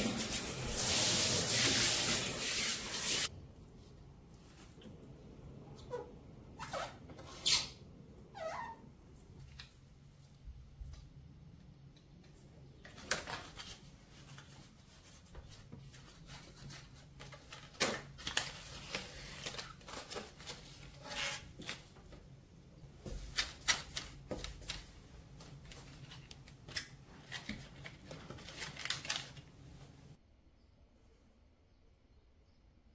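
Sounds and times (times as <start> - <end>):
tape and paper crinkling: 12.9 - 22.0, 23.1 - 29.6.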